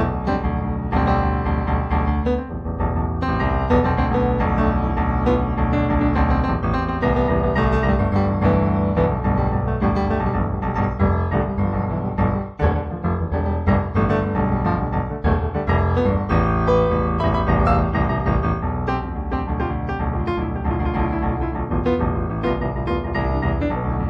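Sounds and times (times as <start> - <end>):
solo piano music: 0.0 - 24.0.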